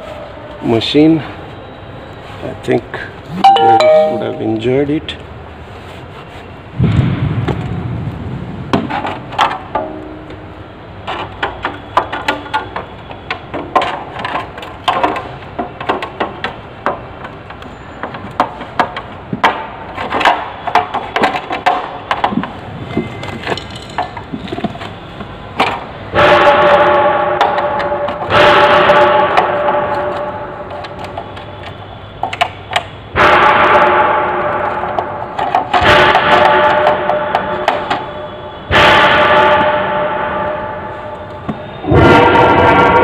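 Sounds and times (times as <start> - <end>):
clicks and knocks of parts handled: 13.3 - 25.8, 29.3 - 32.9.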